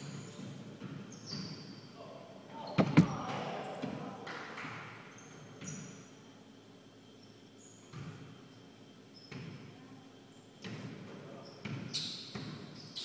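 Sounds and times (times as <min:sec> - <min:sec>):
sneaker squeaks on hardwood floor: 0:00.0 - 0:02.0, 0:02.6 - 0:03.4, 0:05.2 - 0:06.0, 0:09.2 - 0:09.7, 0:10.6 - 0:13.0
soft thuds: 0:02.7 - 0:03.3.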